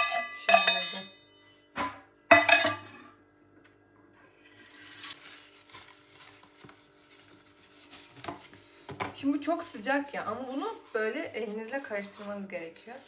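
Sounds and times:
rubbing and scraping on countertop: 4.3 - 13.0.

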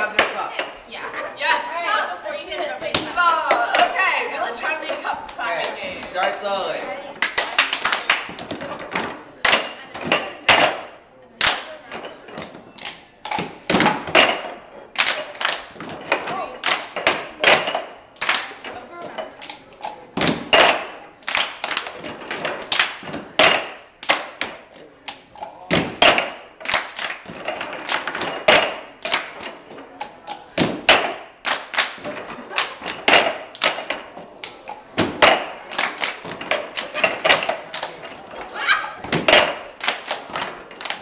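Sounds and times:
hand claps: 7.2 - 8.6, 11.4 - 11.7, 14.9 - 15.8, 16.6 - 18.6, 20.2 - 22.0, 22.6 - 25.2, 26.0 - 29.5, 30.8 - 34.6, 35.2 - 38.1, 39.2 - 41.0
cups knocking on wooden floor: 36.2 - 38.4.

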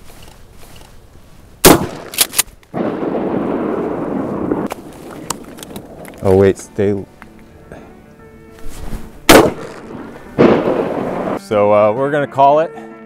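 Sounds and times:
shotgun shot: 1.6 - 3.6, 9.3 - 11.4.

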